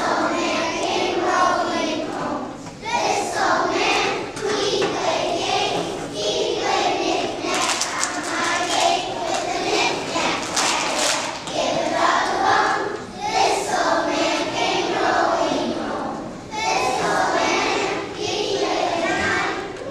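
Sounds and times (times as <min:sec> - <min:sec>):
children singing in unison: 0:00.0 - 0:19.9.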